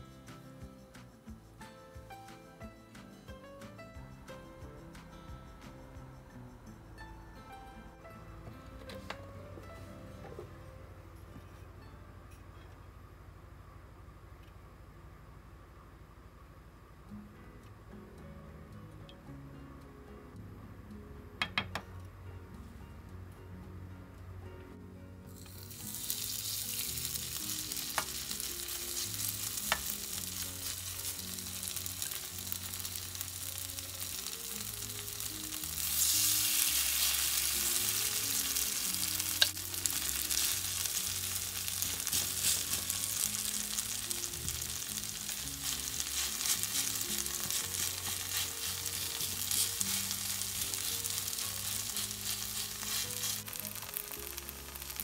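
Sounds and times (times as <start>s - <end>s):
food sizzling in oil: 25.3s - 55.0s.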